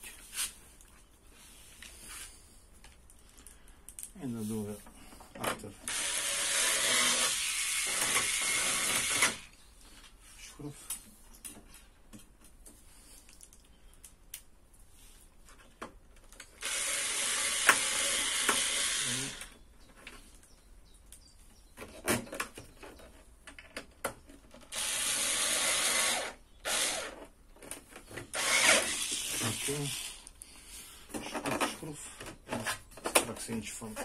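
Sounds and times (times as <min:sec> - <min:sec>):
cordless screwdriver driving screws: 0:05.9 - 0:09.5, 0:16.6 - 0:19.6, 0:24.7 - 0:27.3, 0:28.3 - 0:30.3.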